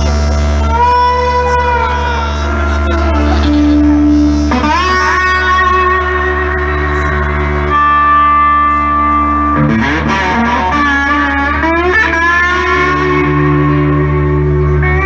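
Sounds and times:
electric guitar bending notes: 0.0 - 15.0.

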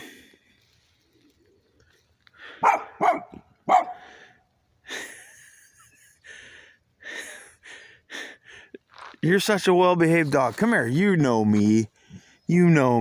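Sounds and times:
heavy breathing with hiss: 2.3 - 3.0, 3.9 - 5.4, 6.2 - 8.9
dog barking: 2.6 - 4.1.

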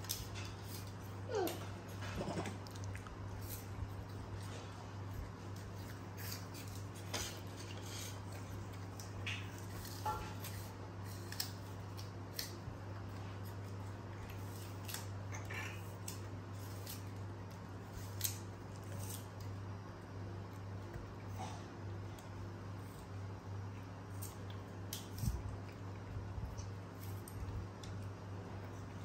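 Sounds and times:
apple slices crunching: 0.0 - 21.2
steady low hum: 0.0 - 29.0.

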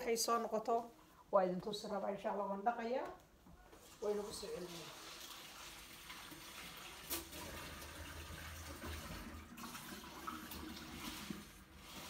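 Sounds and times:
tap water running into sink: 3.8 - 12.0.

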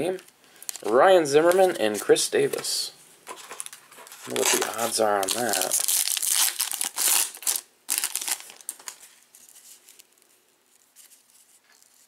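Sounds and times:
cards rustling: 3.3 - 12.0
foil wrapper crinkling: 3.3 - 12.0.

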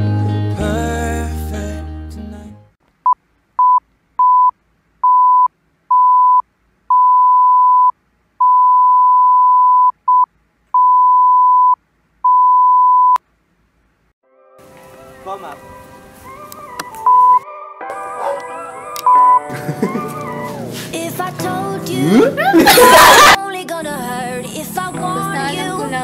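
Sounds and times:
electronic beeps: 17.0 - 17.4, 19.0 - 19.5.

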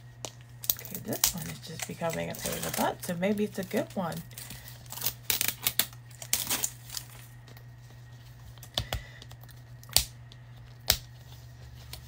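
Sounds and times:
plastic wrap crinkling: 0.3 - 8.7.

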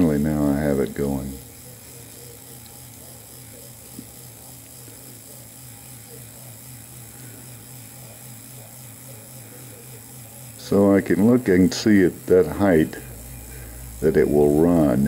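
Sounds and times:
pulsing low buzz: 12.1 - 15.0.

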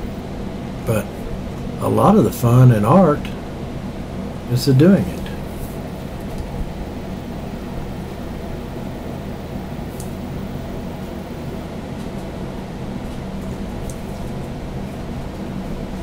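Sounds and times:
low mechanical hum: 0.0 - 16.0.

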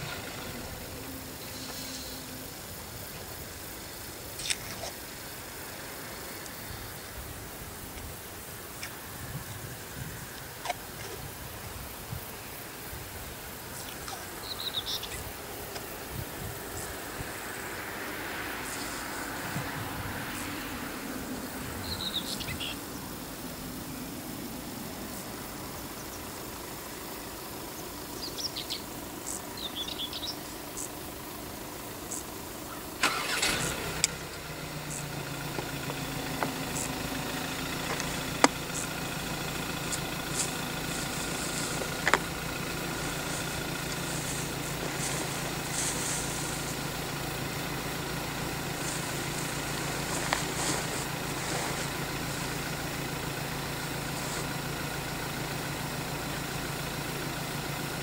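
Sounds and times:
car engine starting and idling: 0.0 - 58.0
bird chirps: 13.8 - 15.3, 21.8 - 22.8, 27.8 - 31.0.

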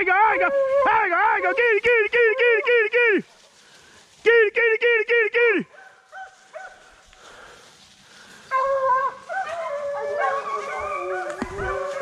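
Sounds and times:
hounds baying: 5.7 - 7.0, 8.3 - 12.0.

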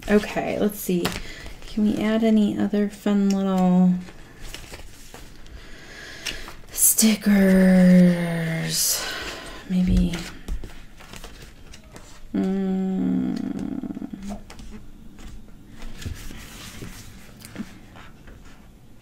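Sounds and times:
sticker sheets rustling and tapping: 9.7 - 12.3
woman humming: 12.3 - 14.9.

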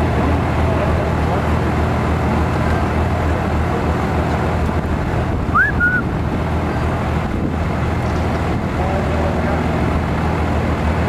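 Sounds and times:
engine running: 0.0 - 11.0
wind noise on microphone: 4.6 - 8.8.

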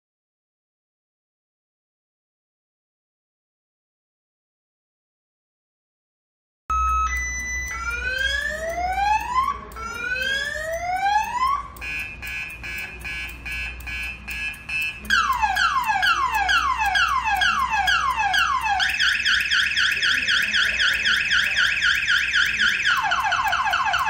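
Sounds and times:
car alarm siren cycling tones: 6.7 - 24.0.

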